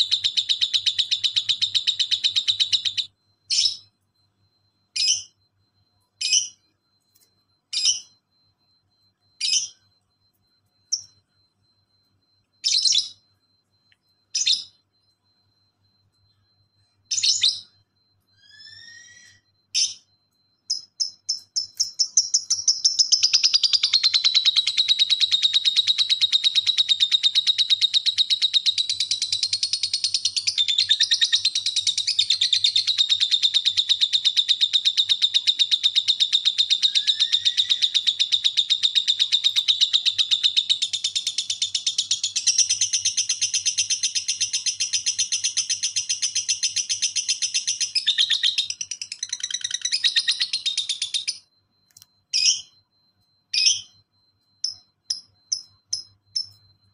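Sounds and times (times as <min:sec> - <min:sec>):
lovebird chattering trill: 0:20.7 - 0:51.4, 0:52.3 - 0:52.7.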